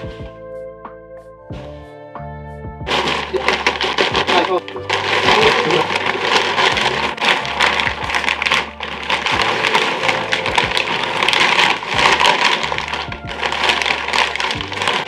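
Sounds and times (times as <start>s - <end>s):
fabric rustling and crinkling: 2.9s - 15.0s.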